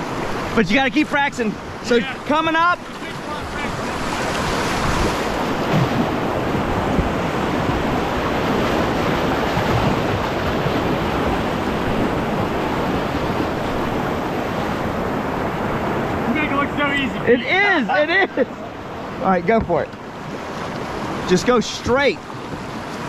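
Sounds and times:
river rapids rushing: 0.0 - 23.0.

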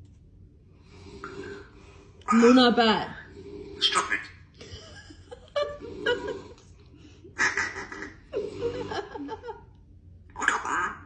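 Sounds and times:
parrot mimicking speech: 3.8 - 4.4, 10.4 - 11.0
parrot laugh-like vocal bursts: 7.4 - 9.4.

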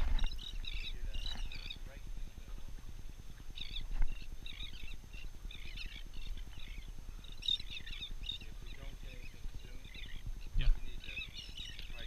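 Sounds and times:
seabirds chattering: 0.0 - 12.0.

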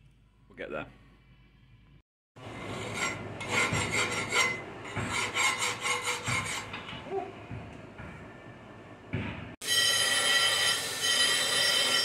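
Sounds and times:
file rasping on steel edge: 2.7 - 7.0.

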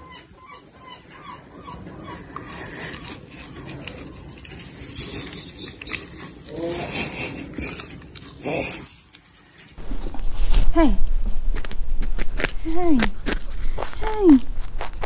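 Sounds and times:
dog chewing: 2.4 - 6.7, 7.3 - 15.0.

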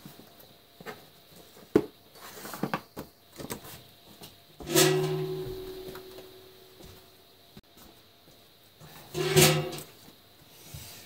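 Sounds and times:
metal strike ringing tone: 4.7 - 6.8.

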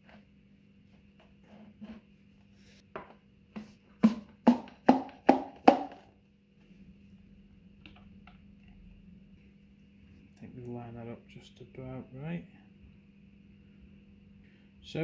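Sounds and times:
rod knocking in cardboard can: 3.0 - 6.1.

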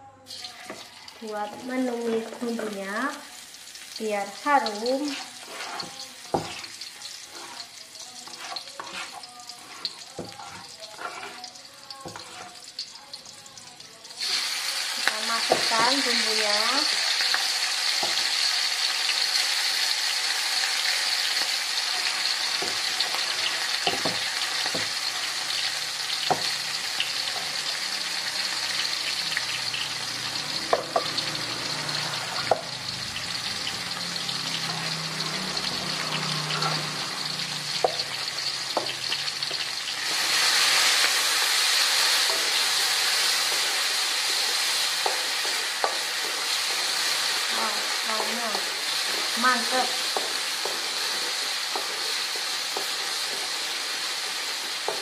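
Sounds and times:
spice paste sizzling in oil: 0.3 - 55.0
wooden spatula stirring in wok: 4.6 - 12.8, 38.7 - 55.0.

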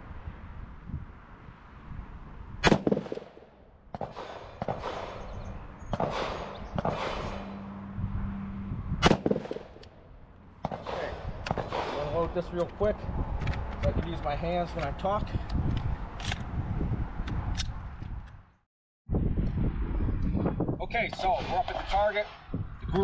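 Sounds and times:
fainter gunshot bangs: 2.6 - 3.4, 4.0 - 7.6, 9.0 - 9.8, 10.6 - 12.2
rifle shots: 2.6 - 7.6, 9.0 - 10.0, 10.6 - 12.3.

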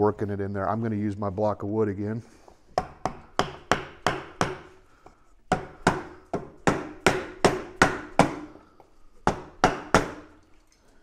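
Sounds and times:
mallet knocking on wood block: 2.8 - 4.7, 5.5 - 8.5, 9.2 - 10.2.

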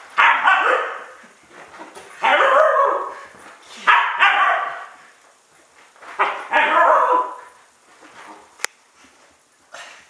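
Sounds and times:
puppy barking: 0.2 - 1.2, 2.2 - 5.0, 6.2 - 7.6.

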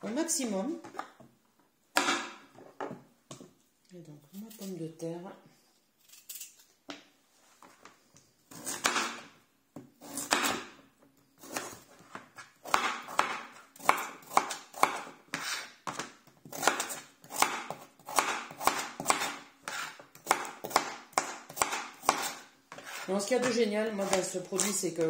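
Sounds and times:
knife cutting potato: 8.5 - 9.3, 9.9 - 10.8, 11.4 - 25.0.

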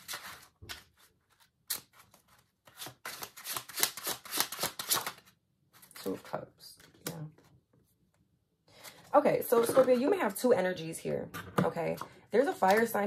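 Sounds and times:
cards being shuffled: 0.0 - 6.2.

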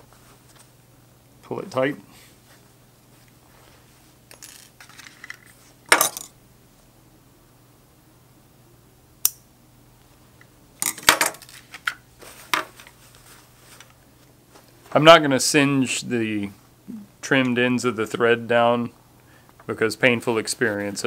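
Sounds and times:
handling rustle: 11.4 - 15.0.

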